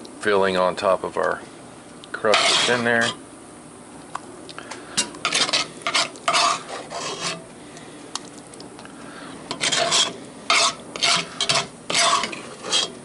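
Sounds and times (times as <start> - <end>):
metal spoon scraping pot: 2.2 - 3.2, 5.0 - 7.5, 9.5 - 13.0.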